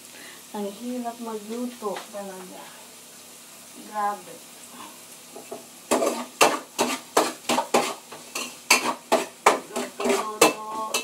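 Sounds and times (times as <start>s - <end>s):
metal utensil clanking in wok: 5.9s - 11.0s.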